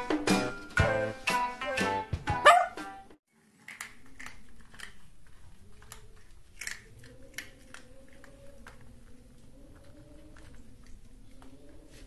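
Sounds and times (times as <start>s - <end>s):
cat crunching dry kibble: 3.4s - 11.9s.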